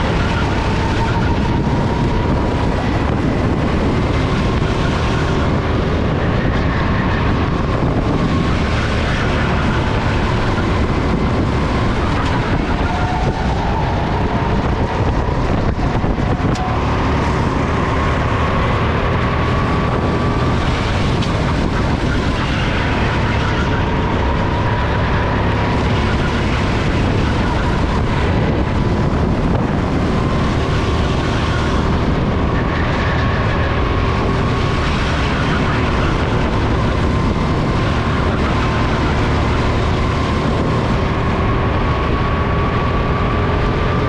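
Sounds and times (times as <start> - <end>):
go-kart engine running hard: 0.0 - 44.0
wind noise: 0.0 - 44.0.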